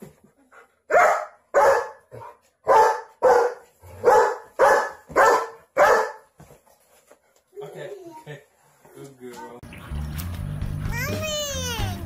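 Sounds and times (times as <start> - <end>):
dog barking loudly: 0.9 - 6.3.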